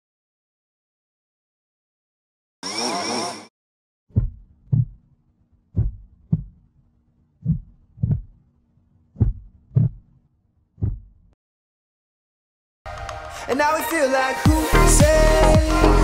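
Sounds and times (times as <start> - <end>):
heartbeat thumps: 4.1 - 5.0, 5.7 - 6.6, 7.4 - 8.4, 9.2 - 10.0, 10.8 - 11.2.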